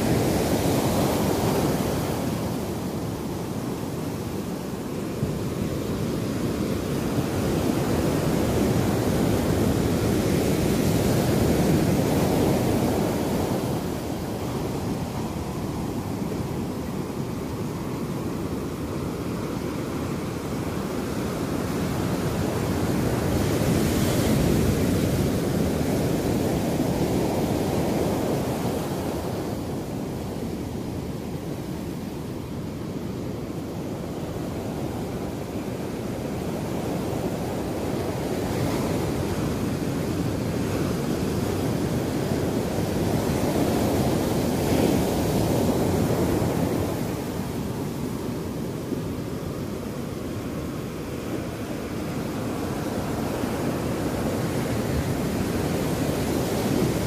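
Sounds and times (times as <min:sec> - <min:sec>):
ocean surf breaking on beach: 0:00.0 - 0:57.0.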